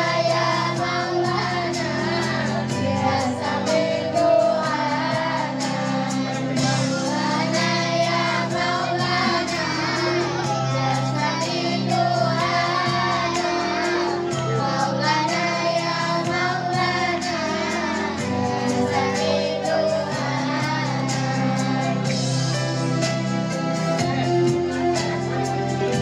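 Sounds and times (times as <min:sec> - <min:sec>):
girls singing together: 0:00.0 - 0:22.2
instrumental backing track: 0:00.0 - 0:26.0.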